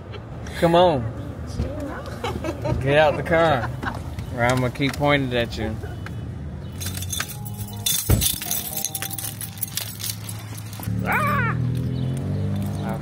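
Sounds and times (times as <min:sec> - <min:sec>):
small clinks and jangles: 0:06.7 - 0:13.0.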